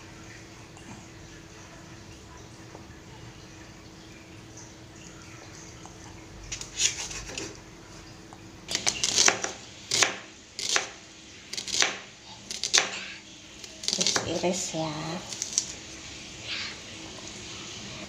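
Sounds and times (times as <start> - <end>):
knife chopping on wooden board: 8.8 - 10.9, 12.6 - 12.9.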